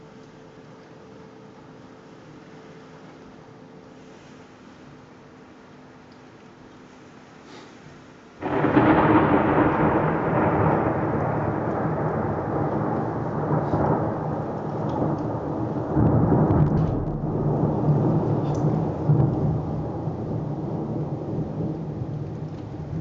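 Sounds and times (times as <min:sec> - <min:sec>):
thunder rumbling: 0:08.4 - 0:23.0.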